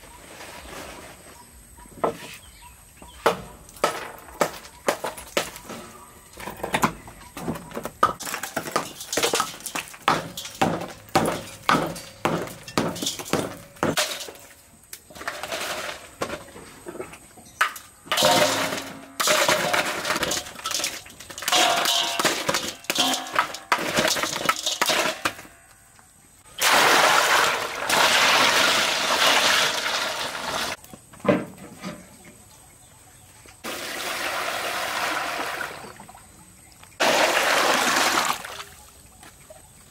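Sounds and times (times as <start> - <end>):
rush of crushed ice: 26.6 - 30.8.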